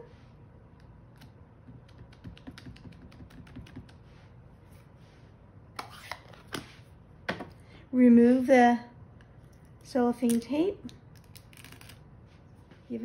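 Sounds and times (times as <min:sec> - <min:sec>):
ink pad tapping on stamp: 0:01.7 - 0:04.0.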